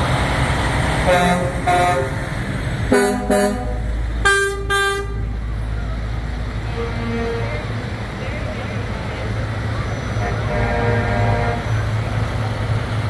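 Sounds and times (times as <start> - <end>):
idling engines rumble: 0.0 - 13.0
vehicle horns honking: 1.0 - 2.2, 2.9 - 5.3, 6.6 - 7.8, 10.2 - 11.8.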